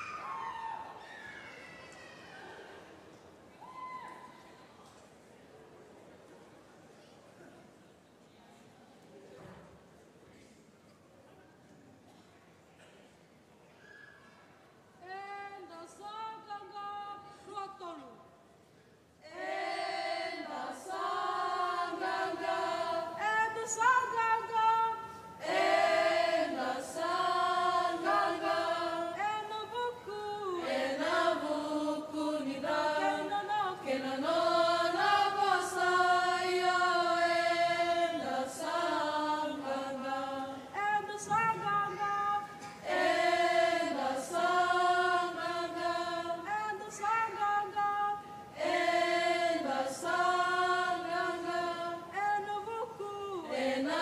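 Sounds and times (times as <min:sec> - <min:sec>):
women singing in harmony: 0:19.3 - 0:54.0.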